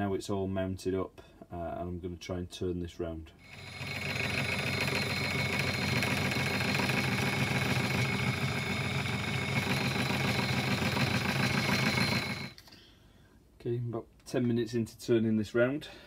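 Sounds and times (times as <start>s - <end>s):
metal lathe turning brass: 3.4s - 12.6s.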